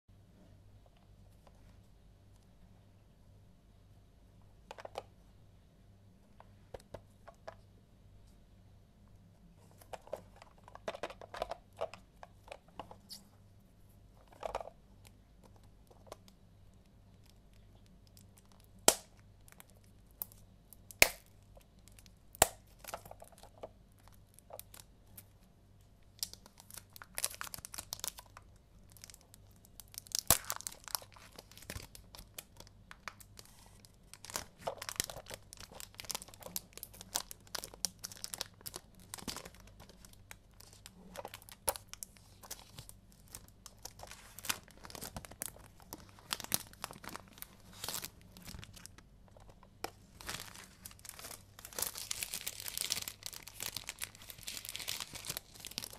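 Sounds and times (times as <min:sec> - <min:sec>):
plastic wrapper crinkling: 0:15.4 - 0:25.4, 0:26.1 - 0:55.9
wrapper clicks and snaps: 0:17.2 - 0:23.5, 0:26.2 - 0:33.4, 0:50.2 - 0:55.9.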